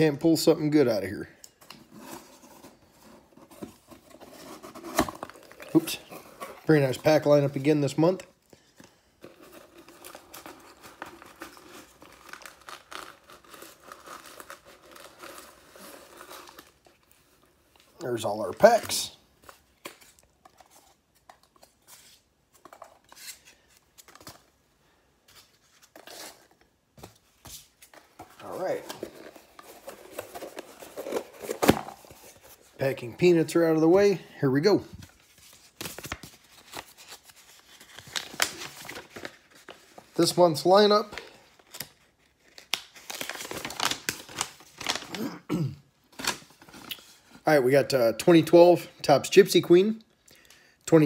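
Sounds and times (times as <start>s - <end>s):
packaging rustling and crinkling: 1.5s - 24.6s, 25.2s - 34.0s, 34.7s - 45.2s, 46.0s - 47.4s
paper rustling and crinkling: 25.2s - 33.1s, 34.9s - 45.2s.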